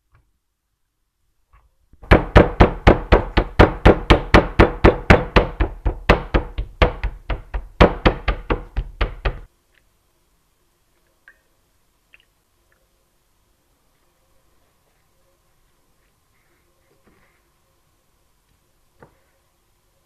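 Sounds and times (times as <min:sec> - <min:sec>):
meat pounded on wooden board: 0:02.0 - 0:09.5.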